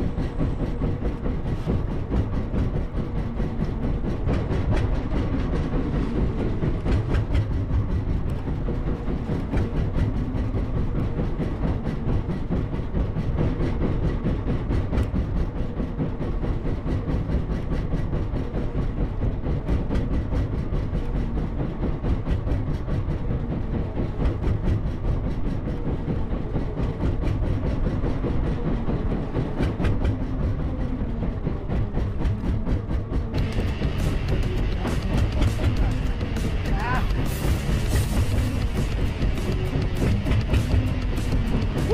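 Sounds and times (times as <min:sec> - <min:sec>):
boat engine chugging: 0:26.9 - 0:41.9.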